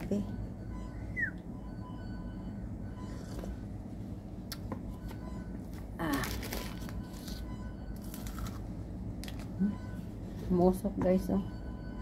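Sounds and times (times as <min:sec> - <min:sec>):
dining room hum: 0:00.0 - 0:12.0
paper wrapper rustling: 0:06.1 - 0:08.6.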